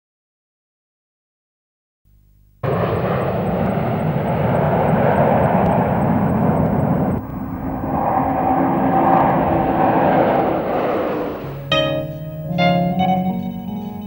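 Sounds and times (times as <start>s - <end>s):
thin steady whine: 2.1s - 14.0s
jet aircraft flying past: 2.6s - 13.0s.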